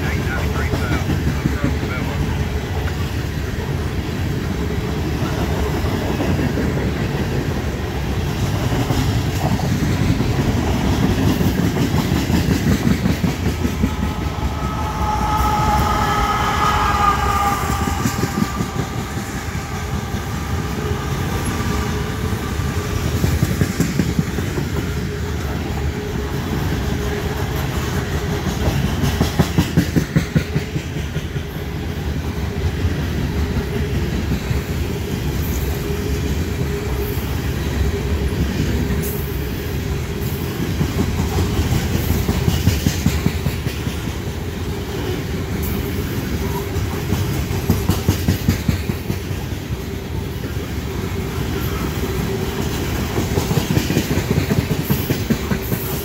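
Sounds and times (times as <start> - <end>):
train cars rumbling: 0.0 - 56.0
wheels clacking over rail joints: 5.6 - 14.7, 51.3 - 56.0
wavering wheel squeal: 13.7 - 22.6.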